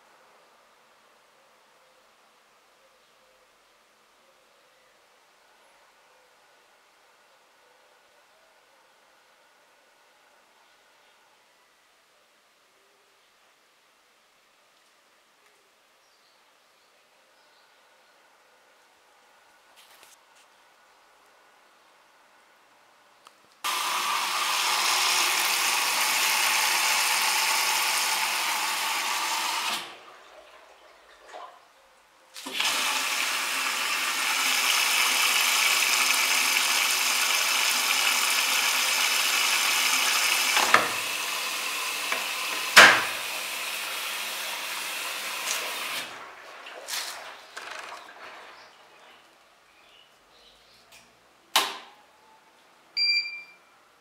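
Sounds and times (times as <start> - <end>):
water rushing into washing machine: 23.7 - 31.6, 32.4 - 48.7.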